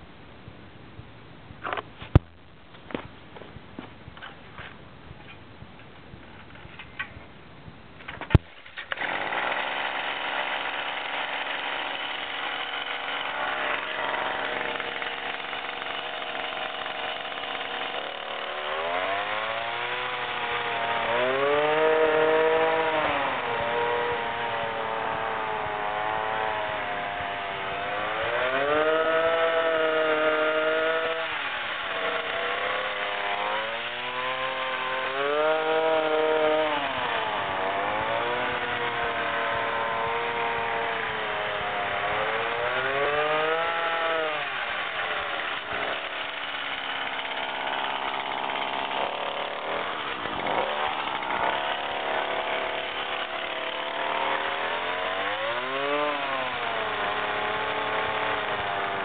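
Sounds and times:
toy truck motor revving: 12.5 - 59.0.

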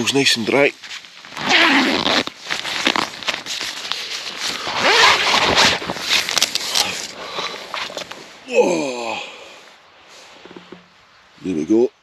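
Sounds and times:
tent zip unzipping: 1.2 - 8.1.

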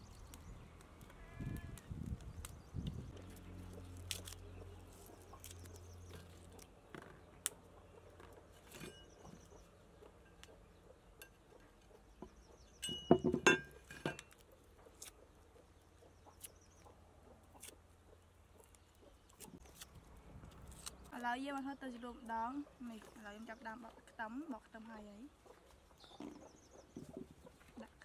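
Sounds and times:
garlic cloves being peeled: 0.0 - 9.6, 14.2 - 21.7
cleaver knocking: 12.2 - 14.3.

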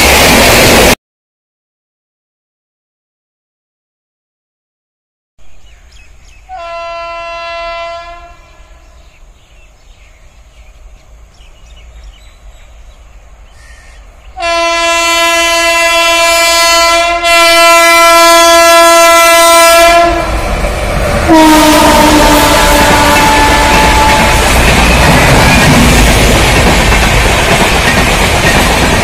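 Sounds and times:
rumble of oncoming train: 5.5 - 29.0
train horn blasts: 6.5 - 9.1, 14.4 - 20.4, 21.3 - 25.7.

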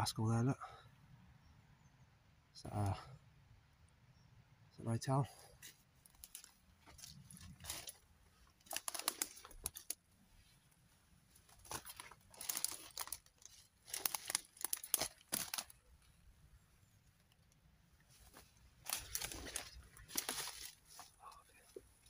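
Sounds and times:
footsteps through dry undergrowth: 5.5 - 15.9, 18.1 - 22.0.

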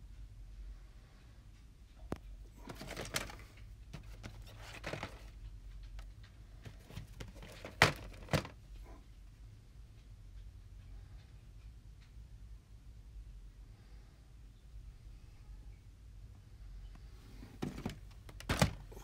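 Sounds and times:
plastic cases clacking: 2.5 - 8.9, 17.4 - 19.0.

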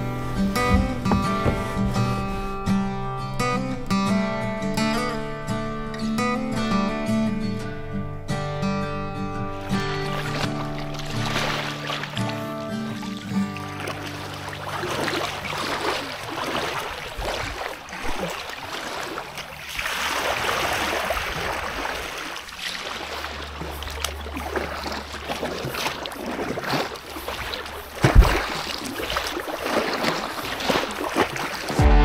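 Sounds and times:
water splashing under paddle strokes: 0.0 - 7.8, 8.9 - 31.8.

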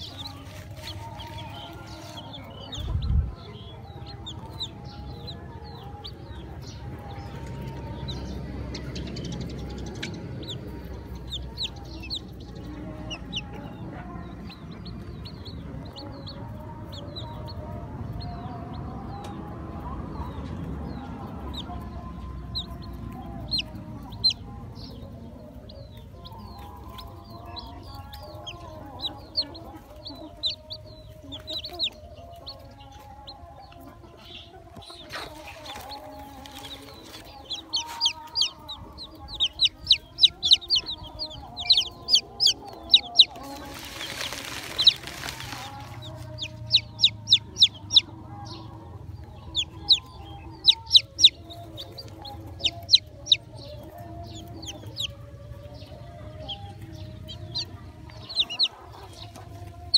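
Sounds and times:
chicks peeping: 0.0 - 59.9
hen clucking: 21.3 - 59.9.

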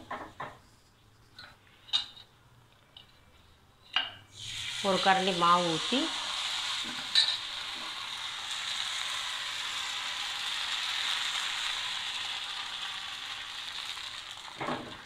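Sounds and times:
batter sizzling in a pan: 4.3 - 15.0.

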